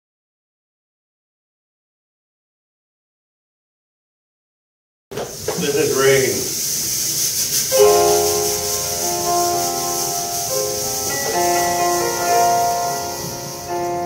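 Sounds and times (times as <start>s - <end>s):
piano playing sustained chords: 7.7s - 14.0s.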